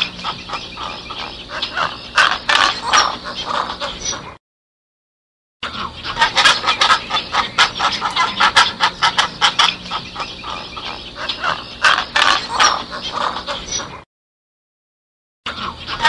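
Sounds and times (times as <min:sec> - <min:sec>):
storks making harsh rasping calls: 0:00.0 - 0:04.3, 0:05.6 - 0:14.0.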